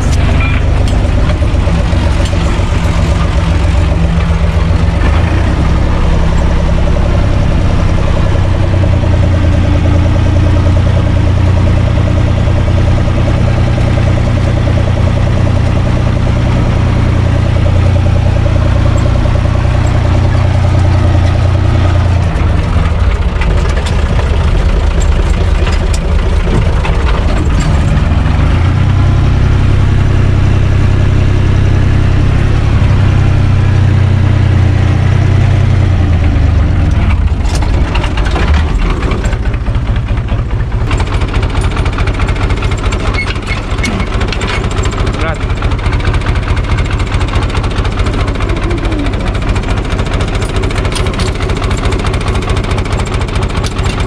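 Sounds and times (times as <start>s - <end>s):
tractor diesel engine running: 0.0s - 54.0s
metal hitch chain clanking: 40.8s - 45.3s.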